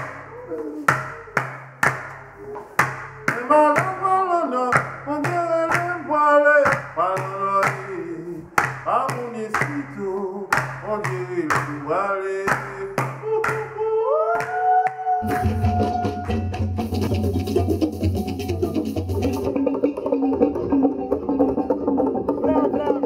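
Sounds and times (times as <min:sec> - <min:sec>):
sharp hand claps: 0:00.0 - 0:00.3, 0:00.9 - 0:04.1, 0:04.7 - 0:06.0, 0:06.6 - 0:15.6
person singing: 0:00.0 - 0:01.4, 0:02.4 - 0:19.6, 0:22.3 - 0:23.0.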